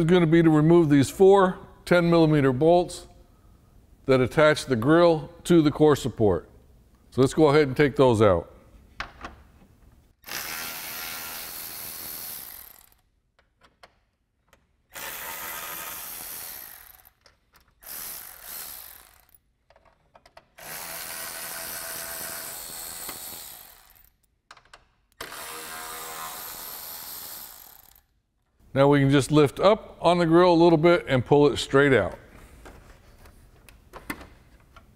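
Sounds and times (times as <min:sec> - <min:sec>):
electric ratchet spinning out bolts: 0:10.2 - 0:13.1, 0:14.9 - 0:19.4, 0:20.5 - 0:24.2, 0:25.2 - 0:28.1.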